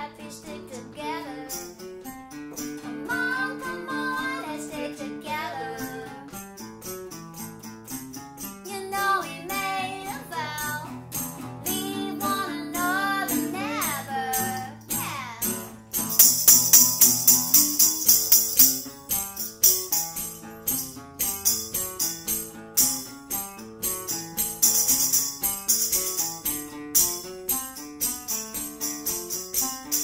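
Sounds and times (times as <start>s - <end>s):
picked guitar notes: 0.0s - 30.0s
tambourine jingling: 1.5s - 2.8s, 5.7s - 8.7s, 10.7s - 30.0s.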